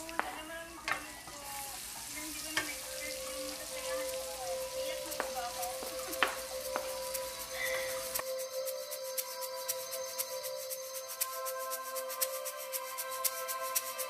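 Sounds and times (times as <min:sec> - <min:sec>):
crab sizzling in a pan: 0:00.0 - 0:08.3
utensil clicking against a pan: 0:02.3 - 0:08.2.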